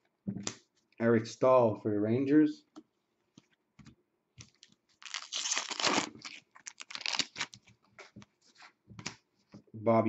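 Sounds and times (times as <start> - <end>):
foil pack tearing: 5.0 - 7.6.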